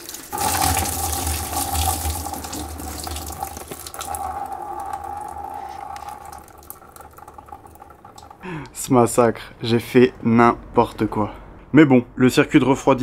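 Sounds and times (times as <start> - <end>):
coolant gushing into drain pan: 0.0 - 8.5.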